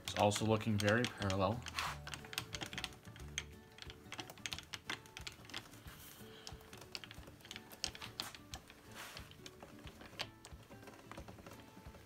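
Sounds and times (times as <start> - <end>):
mill table handwheel clicking and rattling: 0.0 - 12.0.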